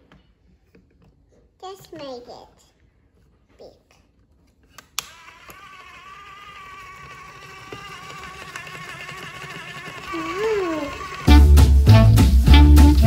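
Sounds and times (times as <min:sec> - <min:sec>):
small electric motor whirring: 0:04.9 - 0:11.4.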